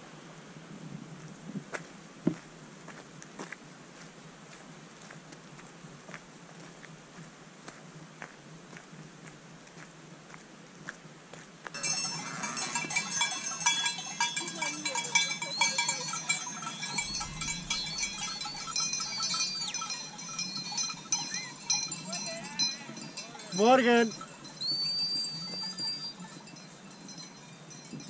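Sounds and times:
sheep bells ringing: 11.8 - 28.0.

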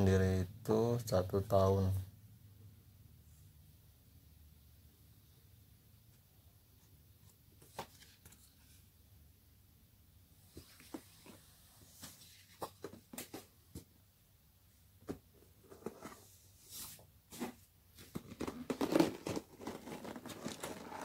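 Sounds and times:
paper rustling: 10.6 - 13.5
cardboard box scraping and crinkling: 18.5 - 21.0.

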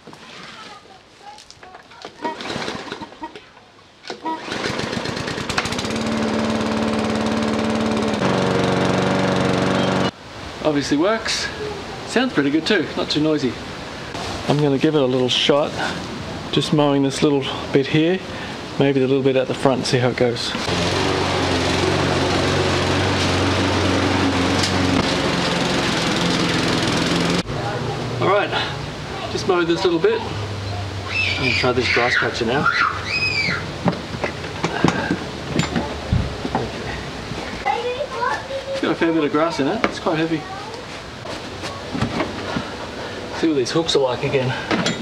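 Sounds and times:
lawn mower engine starting: 2.1 - 3.3, 4.0 - 10.2, 20.5 - 27.5.

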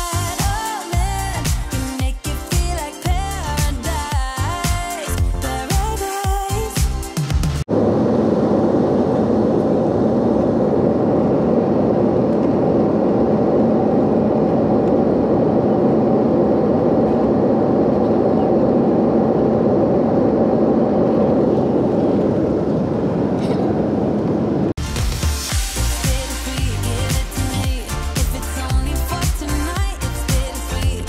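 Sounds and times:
jet airliner cabin noise: 7.7 - 24.8.

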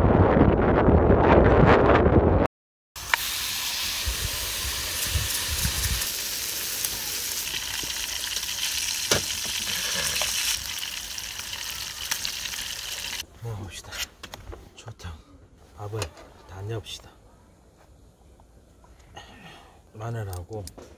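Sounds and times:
food sizzling in a pan: 3.0 - 13.2.

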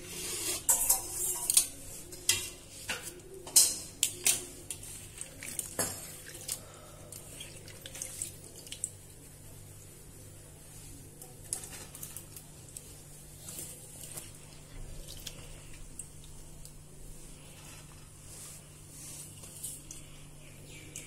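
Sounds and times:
water splashing and dripping: 5.1 - 9.1.

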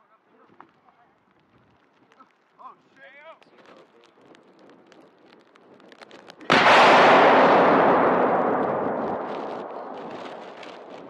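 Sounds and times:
explosive blast with long echo: 6.5 - 11.0.

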